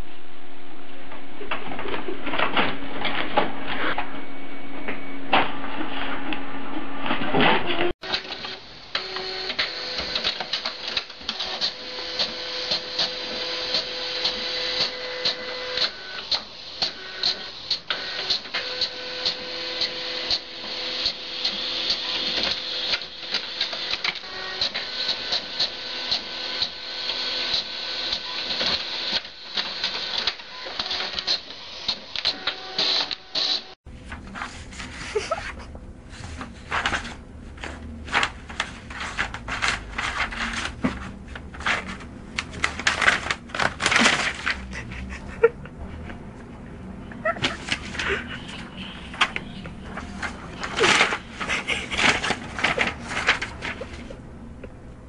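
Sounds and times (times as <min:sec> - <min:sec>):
printer mechanism whirring: 0:01.4 - 0:33.7, 0:36.5 - 0:44.9, 0:47.3 - 0:55.0
printer clicking: 0:08.0 - 0:33.6.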